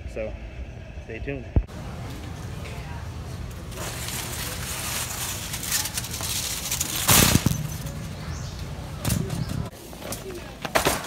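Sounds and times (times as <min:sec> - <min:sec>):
plastic wrap crinkling: 0:03.7 - 0:07.6.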